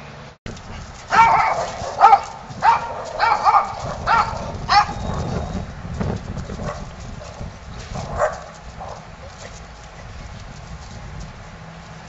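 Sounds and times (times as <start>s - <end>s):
small dogs yapping: 1.0s - 5.6s, 6.4s - 9.6s.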